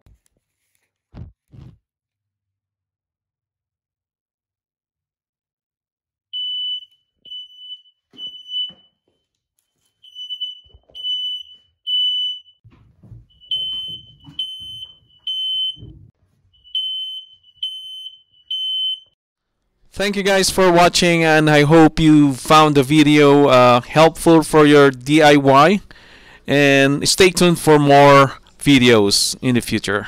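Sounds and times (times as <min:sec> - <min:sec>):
smoke alarms beeping: 0:06.4 - 0:19.2.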